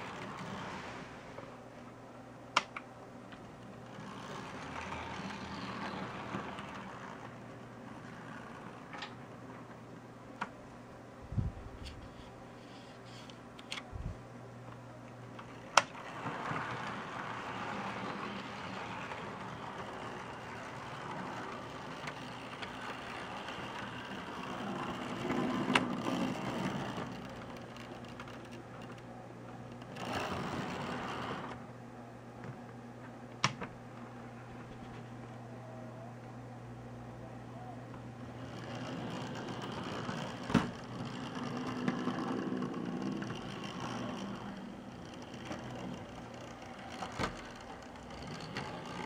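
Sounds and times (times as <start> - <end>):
steady hum: 0.0 - 49.0
model train cars clattering on rails: 15.4 - 29.0, 38.4 - 49.0.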